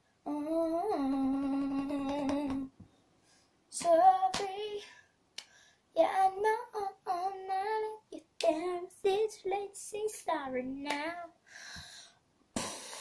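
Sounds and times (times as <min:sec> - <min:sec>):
boy singing: 0:00.2 - 0:02.8, 0:03.7 - 0:05.0, 0:06.0 - 0:11.4.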